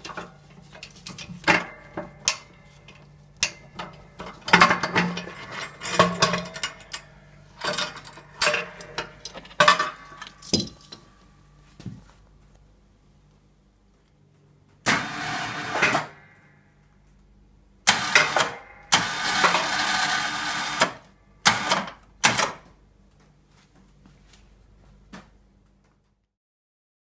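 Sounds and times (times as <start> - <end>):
electric winch running: 14.9 - 16.2, 17.9 - 21.0.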